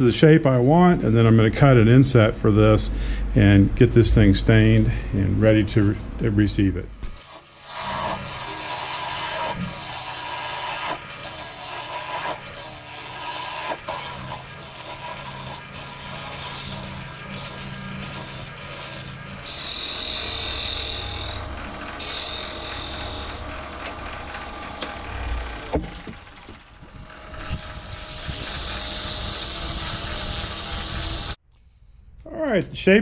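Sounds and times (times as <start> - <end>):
gouge cutting wood on lathe: 7.2 - 31.4
lathe motor hum: 7.2 - 31.4.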